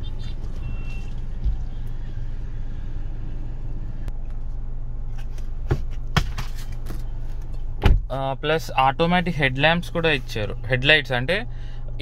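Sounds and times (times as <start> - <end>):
car engine and road drone: 0.0 - 12.0.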